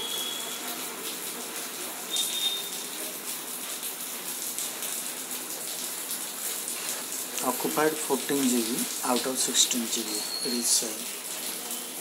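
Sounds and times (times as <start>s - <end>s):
brief high whistle: 0.0s - 0.6s, 2.1s - 2.7s.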